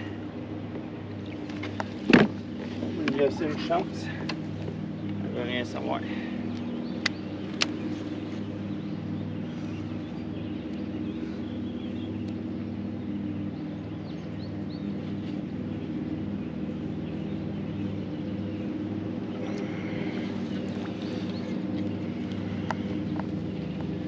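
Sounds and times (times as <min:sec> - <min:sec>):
motor humming: 0:00.0 - 0:24.0.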